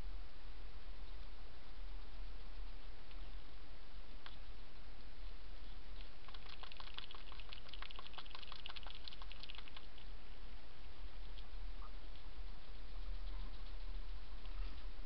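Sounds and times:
steady low hum: 0:00.0 - 0:15.0
hedgehog crunching food: 0:06.0 - 0:10.2.

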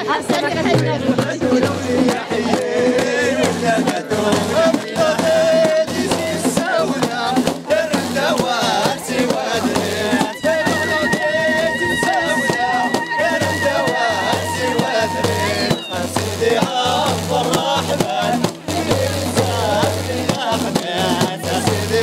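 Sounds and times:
frame drums beating: 0:00.0 - 0:22.0
men singing together: 0:00.0 - 0:22.0
hand clapping: 0:02.1 - 0:03.1.

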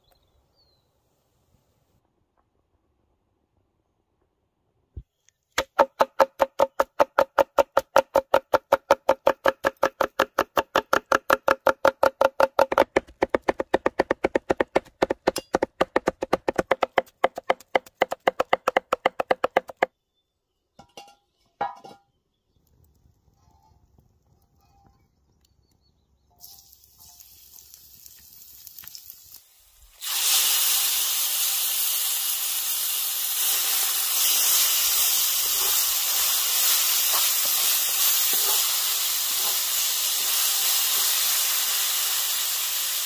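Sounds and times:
cleavers chopping on wooden board: 0:05.6 - 0:19.9.

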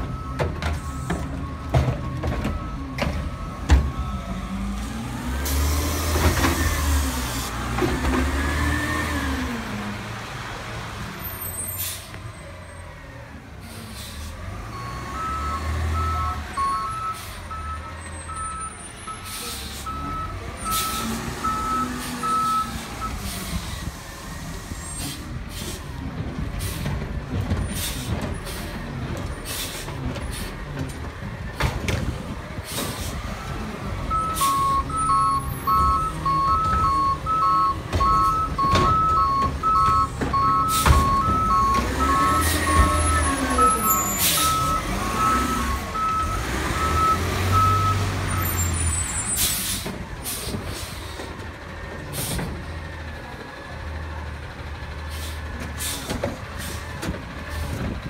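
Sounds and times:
diesel engine rumbling and revving: 0:00.0 - 0:58.0
backup alarm beeping: 0:34.1 - 0:48.6.

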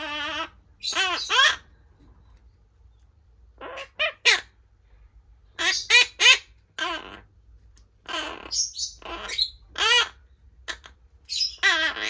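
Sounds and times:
parakeet calling: 0:00.0 - 0:01.9, 0:03.5 - 0:04.7, 0:05.4 - 0:07.4, 0:08.0 - 0:12.0.

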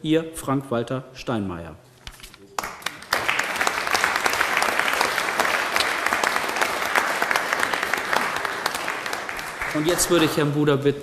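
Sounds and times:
audience applauding: 0:02.6 - 0:10.7.

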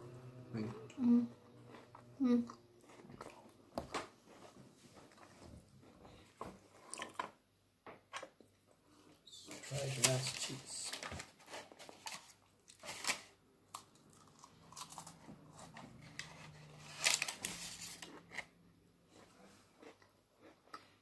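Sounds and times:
biscuit crunching: 0:11.6 - 0:21.0.

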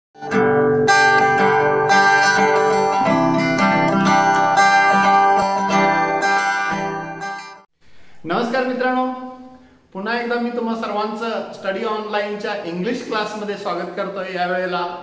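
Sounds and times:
plucked string instrument music: 0:00.2 - 0:07.7.

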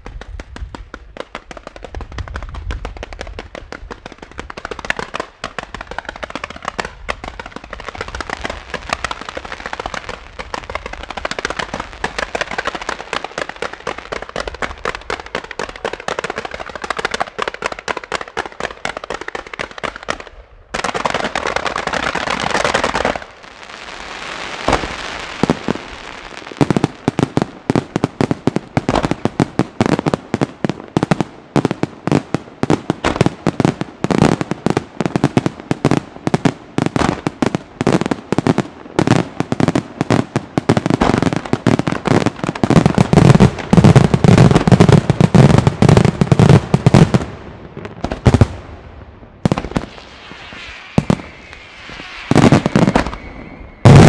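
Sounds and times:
crackling hiss of fireworks stars: 0:21.3 - 0:32.2, 0:49.5 - 0:54.0.

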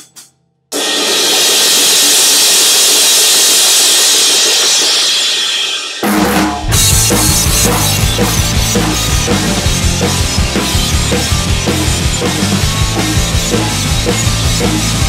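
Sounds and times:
drum kit played hard: 0:00.0 - 0:15.0
crashing cymbals: 0:00.7 - 0:15.0
rock music with heavy bass: 0:03.2 - 0:15.0.

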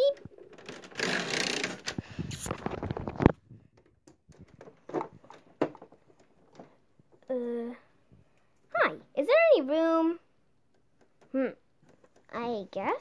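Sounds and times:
plush toy rustling and scraping: 0:00.4 - 0:03.7.

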